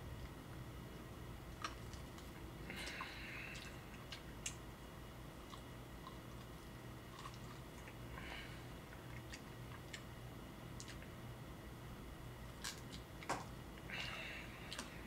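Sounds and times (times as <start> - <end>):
chewing and biting meat: 5.4 - 8.1.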